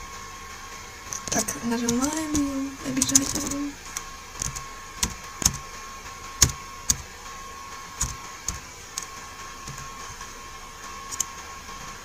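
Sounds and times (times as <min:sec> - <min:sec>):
computer keyboard keys clicking: 0:04.4 - 0:05.6, 0:08.0 - 0:09.1.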